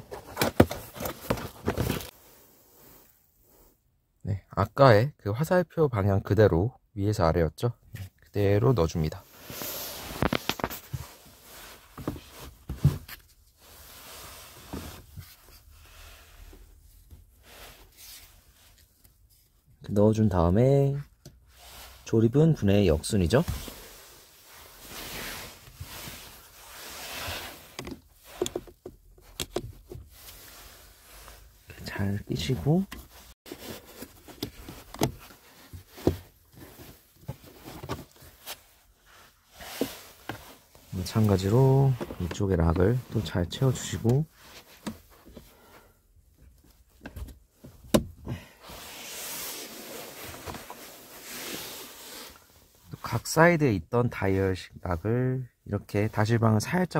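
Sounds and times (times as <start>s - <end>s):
plastic rubbing and scraping: 0.0s - 2.1s
rustling handling noise: 0.0s - 2.2s, 20.9s - 52.9s.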